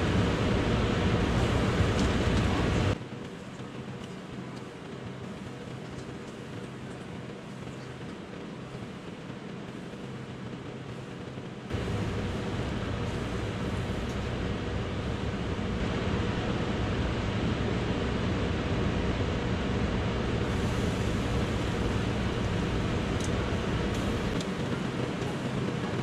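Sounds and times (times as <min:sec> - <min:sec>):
steady rushing noise: 0:00.0 - 0:26.0
low hum: 0:11.0 - 0:26.0.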